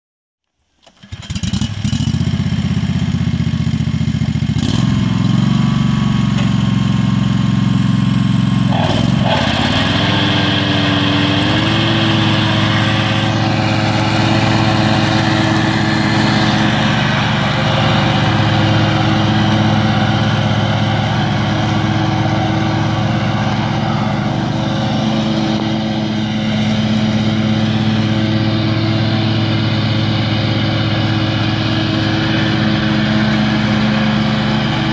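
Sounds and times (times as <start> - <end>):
lawn mower engine running: 0.8 - 34.9.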